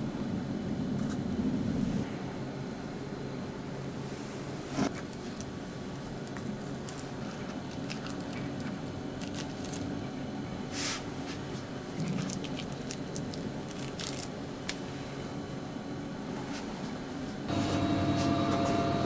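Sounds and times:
steady low hum: 0.0s - 19.0s
dough peeled off plastic wrap: 6.8s - 9.9s, 12.0s - 14.8s.

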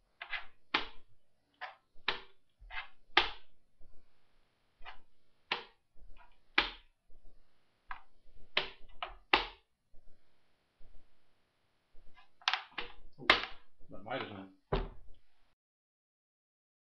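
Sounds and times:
chess pieces clacking on board: 0.2s - 1.0s, 1.6s - 3.5s.

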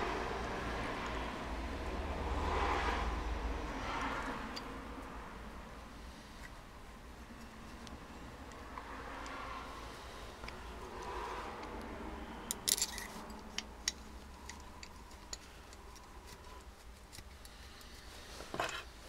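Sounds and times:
metal parts clicking and tapping: 12.4s - 18.9s.

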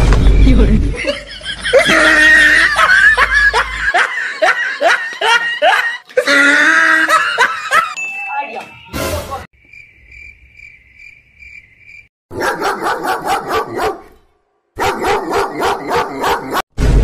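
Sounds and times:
cricket chirping: 9.6s - 12.1s
dog barking: 12.3s - 14.2s, 14.8s - 16.6s.

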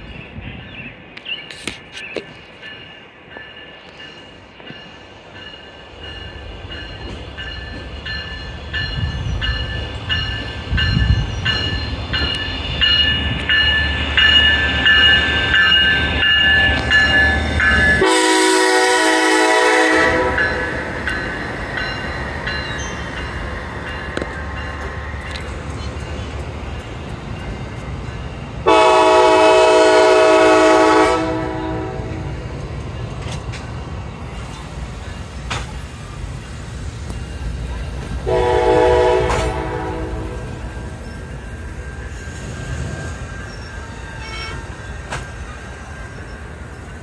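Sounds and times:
diesel locomotive engine: 0.0s - 47.0s
train cars rumbling past: 0.0s - 47.0s
crossing bell ringing: 2.2s - 33.4s, 34.8s - 47.0s
train horn blast: 16.7s - 20.8s, 28.6s - 32.4s, 38.2s - 40.6s, 44.0s - 44.8s.

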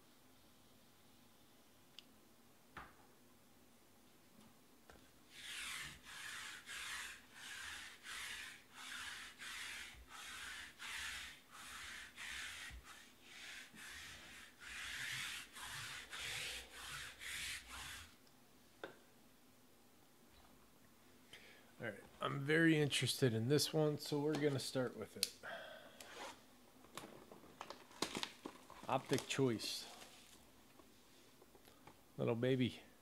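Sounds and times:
hand rubbing a tabletop: 5.3s - 18.2s.

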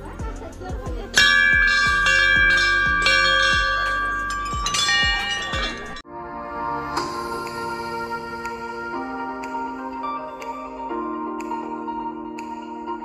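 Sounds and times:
background music with steady beat: 0.0s - 13.0s
brass bells ringing: 1.2s - 6.0s.

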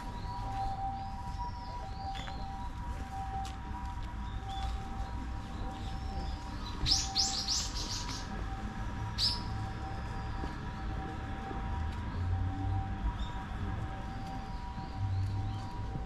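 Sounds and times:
bird calling shrill notes: 6.8s - 8.3s.

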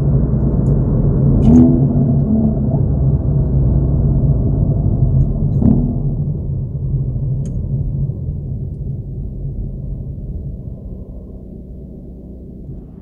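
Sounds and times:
car engine rumble from cabin: 0.0s - 13.0s
sharp knock: 5.6s - 6.5s.

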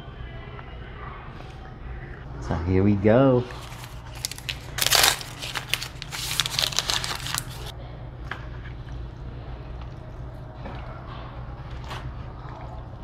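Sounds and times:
steady low hum: 0.0s - 13.0s
crinkling handling noise: 3.5s - 7.7s.

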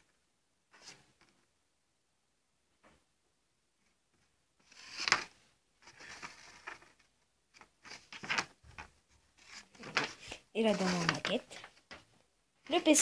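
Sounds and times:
paper rustling and scraping: 4.6s - 12.0s.

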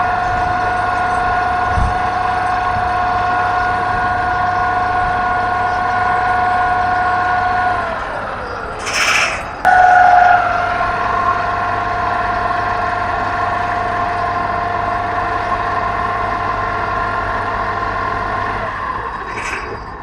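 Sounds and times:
low engine hum: 0.0s - 20.0s
pile hammer high whine: 8.6s - 20.0s.

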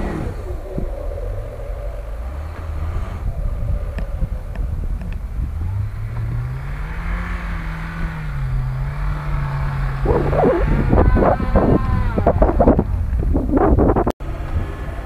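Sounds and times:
vehicle engine revving: 0.0s - 15.0s
loud wavering sounds: 9.7s - 13.0s.

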